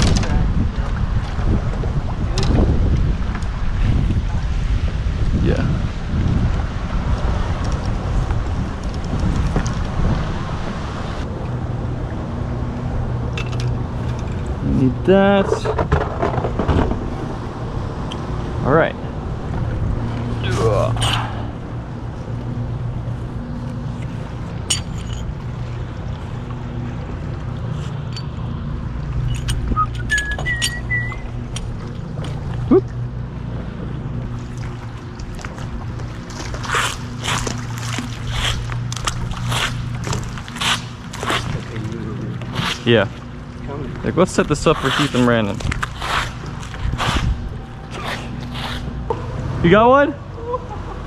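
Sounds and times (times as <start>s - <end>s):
wind buffeting microphone: 0.0s - 11.4s, 41.3s - 49.7s
steady low hum: 0.0s - 51.0s.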